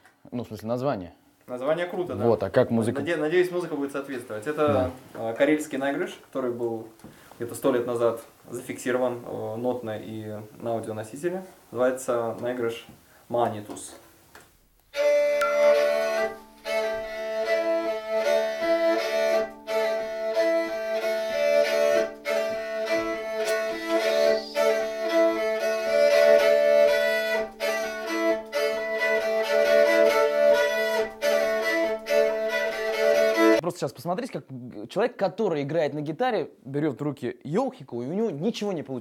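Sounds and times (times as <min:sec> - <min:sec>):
bowed lyre folk melody over drone: 0:15.0 - 0:33.6.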